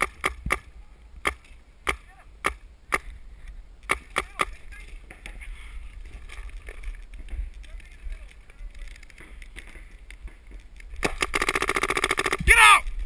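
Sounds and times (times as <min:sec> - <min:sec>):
paintball marker firing: 0:00.0 - 0:03.1, 0:03.8 - 0:04.6, 0:11.0 - 0:12.5.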